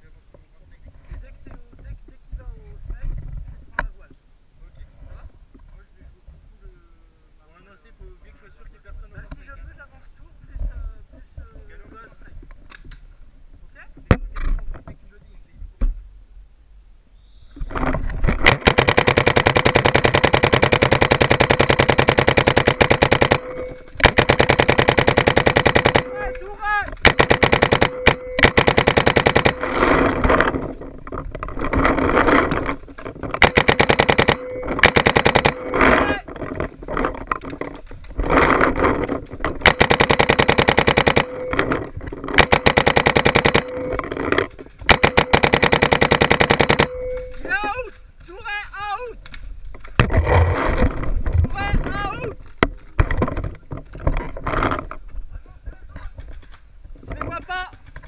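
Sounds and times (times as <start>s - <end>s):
paintball marker firing rapidly: 18.4s - 30.7s, 31.6s - 36.6s, 38.3s - 47.4s.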